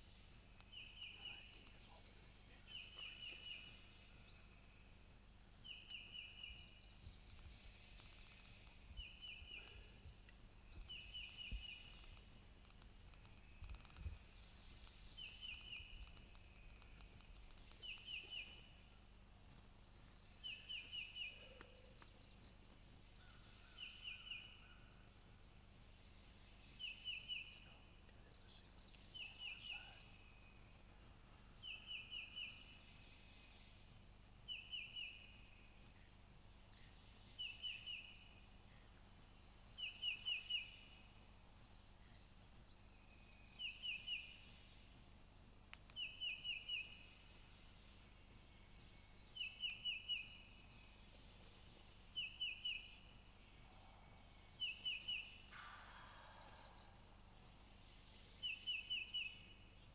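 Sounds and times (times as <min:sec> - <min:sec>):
songbird singing: 0:00.0 - 0:59.9
faint high bird calls: 0:26.8 - 0:30.6, 0:53.6 - 0:59.5.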